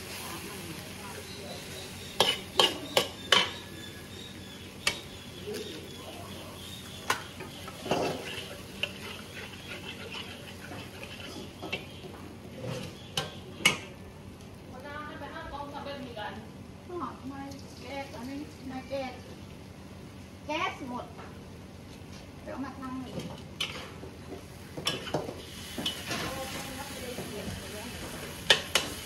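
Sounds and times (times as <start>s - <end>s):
food sizzling: 0.0s - 21.0s, 24.5s - 29.0s
utensil clanking and scraping pan: 1.5s - 13.9s, 23.1s - 24.0s, 24.8s - 27.4s, 28.0s - 29.0s.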